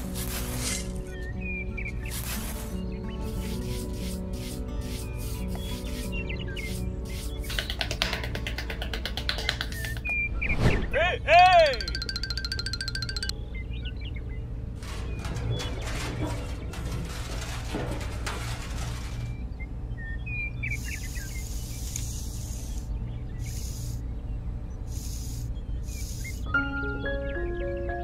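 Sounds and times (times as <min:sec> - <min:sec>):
trowel scraping sand: 0:00.0 - 0:01.2, 0:02.0 - 0:07.7, 0:15.8 - 0:19.4
sand crunching and scratching: 0:00.0 - 0:07.7, 0:14.8 - 0:19.6
faint bird chirps: 0:01.0 - 0:08.0, 0:19.5 - 0:28.0.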